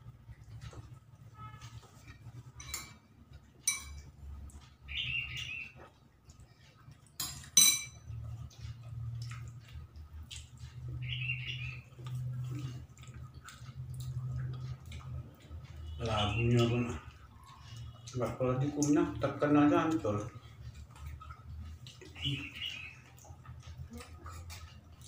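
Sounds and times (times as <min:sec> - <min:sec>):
soft chewing: 0:00.0 - 0:25.0
dishes clinking: 0:02.5 - 0:04.1, 0:07.2 - 0:08.2
spoon clinking on ceramic bowl: 0:02.6 - 0:03.0, 0:03.6 - 0:04.1, 0:07.2 - 0:08.1.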